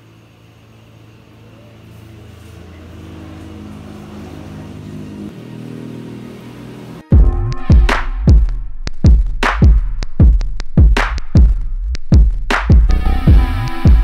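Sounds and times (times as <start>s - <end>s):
vehicle engine running: 0.0s - 8.4s.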